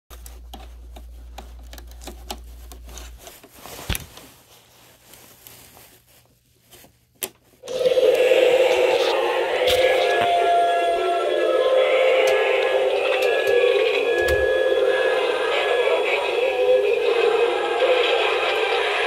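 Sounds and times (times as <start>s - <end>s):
loud droning tone: 7.6s - 19.0s.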